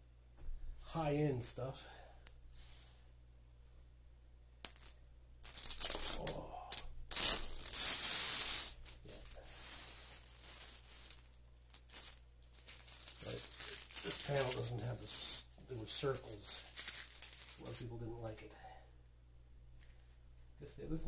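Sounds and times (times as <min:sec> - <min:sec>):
plastic film peeling: 0:05.5 - 0:17.9.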